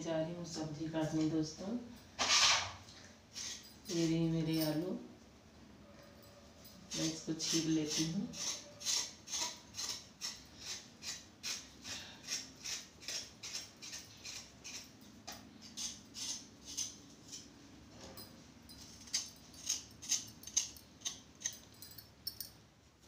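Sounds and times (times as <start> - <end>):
blade scraping potato skin: 6.9 - 14.9, 15.6 - 17.5, 19.0 - 21.5.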